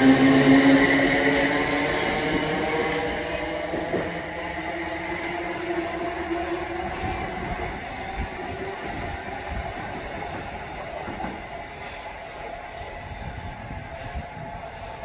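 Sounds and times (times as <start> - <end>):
electric train whining: 0.0 - 15.0.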